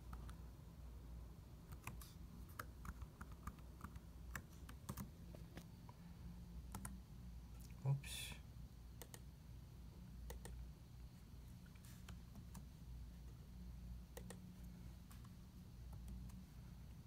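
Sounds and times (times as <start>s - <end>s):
low steady hum: 0.0s - 17.0s
laptop keyboard typing clicks: 1.7s - 5.1s, 6.7s - 7.0s, 10.3s - 10.6s, 14.1s - 14.4s.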